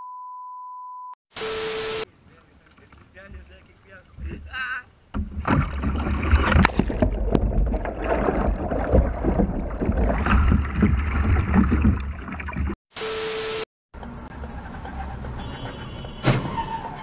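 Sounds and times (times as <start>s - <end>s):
steady beep: 0.0s - 2.1s
water splashing and churning: 2.2s - 12.8s.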